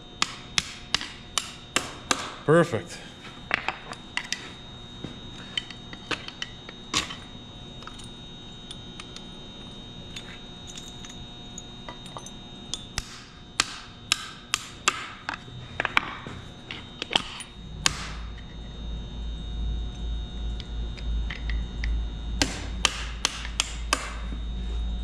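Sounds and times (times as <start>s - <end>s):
metal parts clinking on engine block: 10.7s - 12.9s.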